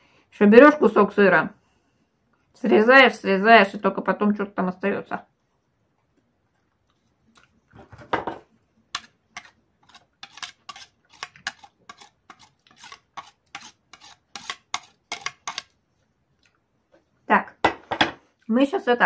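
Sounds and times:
spoon rubbing on grater: 8.9 - 15.7.

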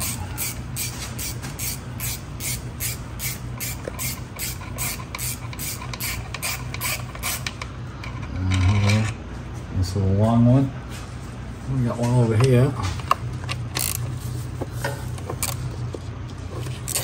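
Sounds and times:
hand ratchet clicking: 0.0 - 7.7, 13.7 - 14.0.

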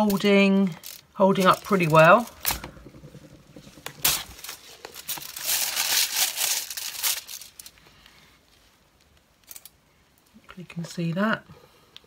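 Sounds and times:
foil crinkling and handling: 0.0 - 3.1, 3.8 - 8.1.

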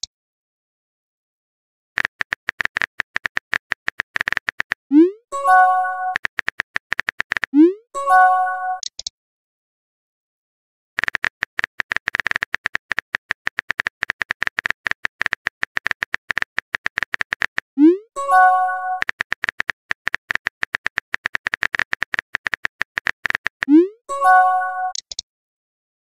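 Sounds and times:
phone keyboard typing clicks: 2.0 - 4.9, 5.9 - 7.6, 8.8 - 9.1, 11.0 - 17.8, 18.4 - 25.2.

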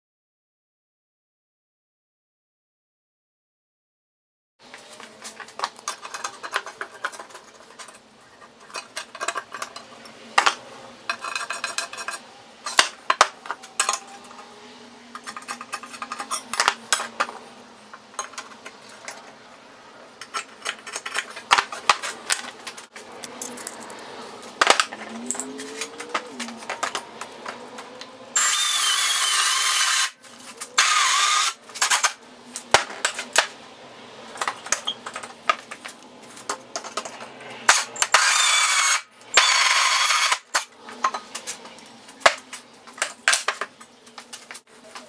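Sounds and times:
metal scraping and rattling: 5.1 - 19.4, 20.2 - 28.1.

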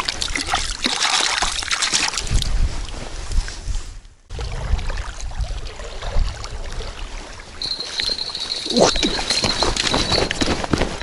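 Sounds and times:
moving river water: 0.0 - 3.7, 4.3 - 11.0
wind rumbling on microphone: 2.2 - 11.0.

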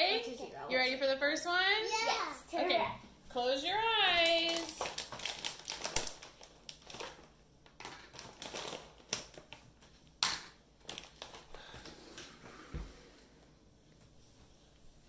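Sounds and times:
plastic packaging crinkling: 4.1 - 11.7.

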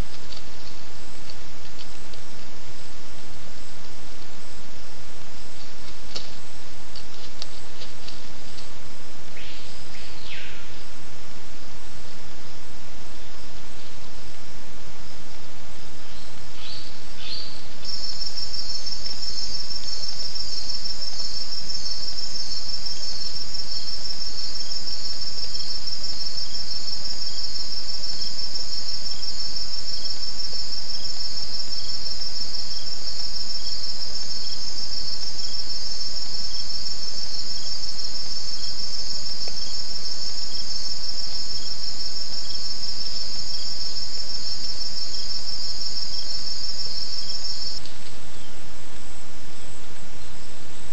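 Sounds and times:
steady hiss: 0.0 - 50.9
insects trilling: 16.0 - 48.7.

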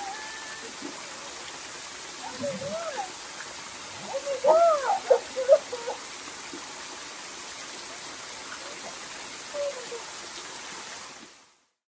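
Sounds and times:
high-pitched vocal cries: 0.0 - 0.9, 2.2 - 3.2, 4.0 - 6.0, 9.5 - 10.1
small waterfall splashing: 0.0 - 11.8.

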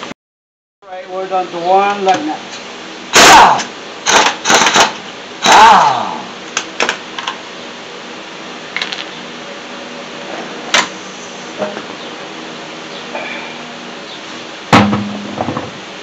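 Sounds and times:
air impact wrench whine: 2.8 - 7.3, 10.5 - 11.9.

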